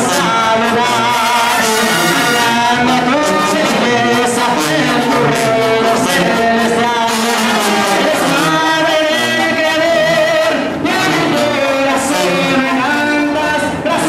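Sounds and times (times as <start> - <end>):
crowd singing together: 0.0 - 12.9
instrumental accompaniment: 0.6 - 4.4.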